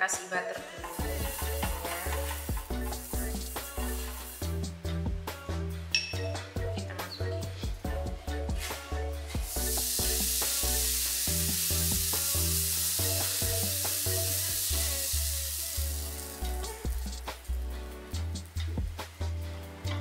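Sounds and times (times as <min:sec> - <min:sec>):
background music: 0:00.0 - 0:20.0
batter sizzling in butter: 0:00.9 - 0:04.6, 0:09.3 - 0:19.6.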